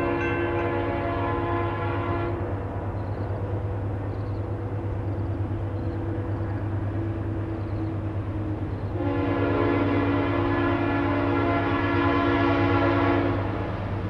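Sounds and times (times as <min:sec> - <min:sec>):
multi-chime air horn: 0:00.0 - 0:02.2
diesel locomotive rumbling: 0:00.0 - 0:14.0.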